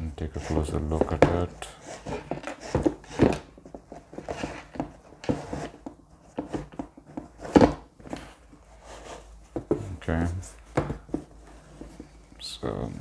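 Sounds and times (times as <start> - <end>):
soft knocks: 9.5 - 10.0, 10.7 - 12.1.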